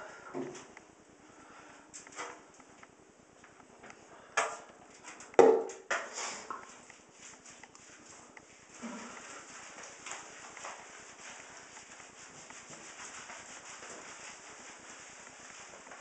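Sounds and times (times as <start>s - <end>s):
knocks and thumps in bathtub: 5.4s - 5.9s.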